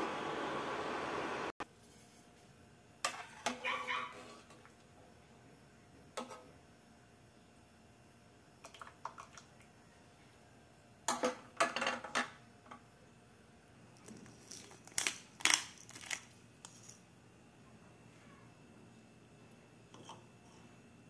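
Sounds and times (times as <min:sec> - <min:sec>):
faint room noise: 0:01.2 - 0:21.0
kitchen clicks and scrapes: 0:03.0 - 0:04.7, 0:06.2 - 0:06.5.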